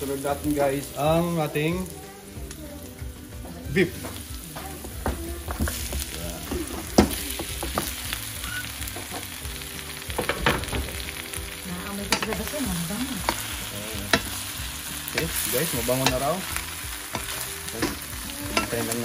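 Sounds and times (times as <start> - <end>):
meat sizzling in a wok: 0.0 - 19.0
knocks against the pan: 4.0 - 8.0, 10.1 - 11.0.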